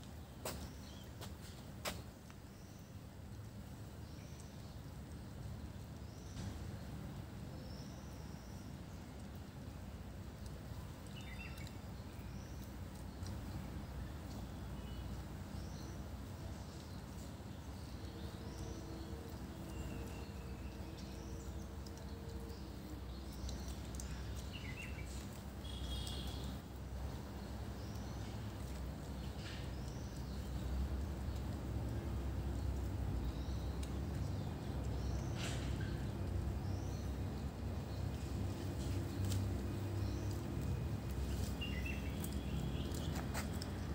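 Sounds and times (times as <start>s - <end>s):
small birds chirping: 0.0s - 43.9s
faint ticks: 20.8s - 26.8s.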